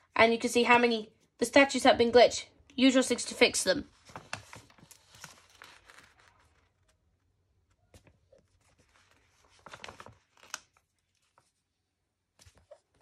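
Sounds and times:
sticker sheet rustling and crackling: 3.9s - 7.2s, 7.8s - 11.6s.

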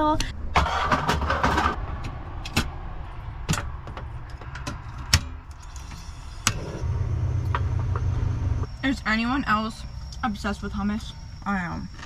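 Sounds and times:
low rumble: 6.5s - 12.0s.

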